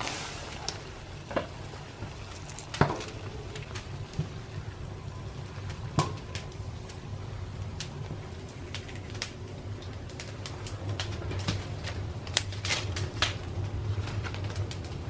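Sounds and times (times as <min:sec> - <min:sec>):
water boiling in a pot: 0:00.0 - 0:15.0.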